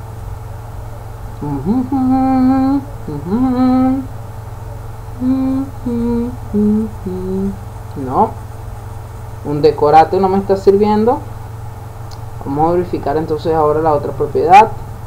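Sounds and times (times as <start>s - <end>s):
low electrical hum: 0.0s - 15.0s
man humming: 1.4s - 4.1s, 5.2s - 8.4s.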